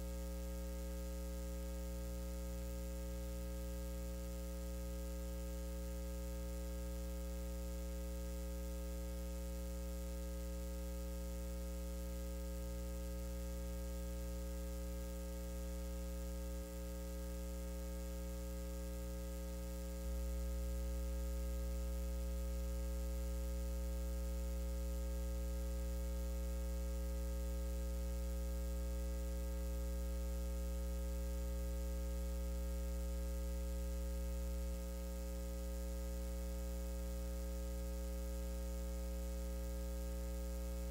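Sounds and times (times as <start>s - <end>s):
electrical mains hum: 0.0s - 40.9s.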